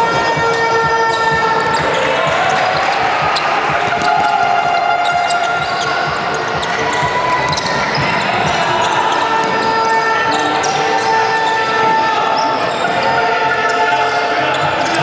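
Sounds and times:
basketball bouncing on court: 0:00.0 - 0:12.0
echoing hubbub of players: 0:00.0 - 0:15.0.

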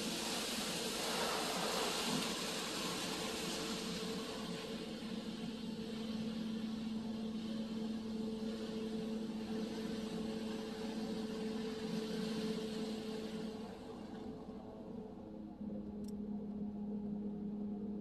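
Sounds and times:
water spray hissing on car: 0:00.0 - 0:04.4
machine hum: 0:04.5 - 0:18.0.

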